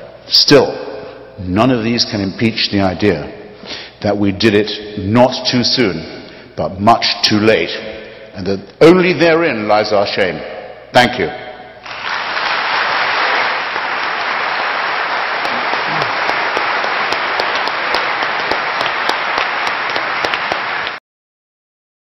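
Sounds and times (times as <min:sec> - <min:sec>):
audience applauding: 0:11.8 - 0:21.0.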